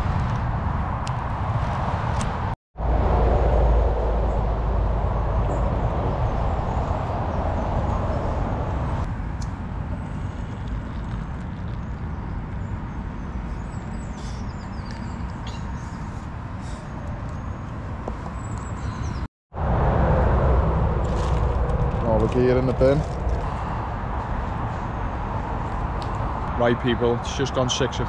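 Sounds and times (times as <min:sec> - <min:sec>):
motorway traffic rumble: 0:00.0 - 0:28.0
faint bird chirps: 0:12.6 - 0:17.7.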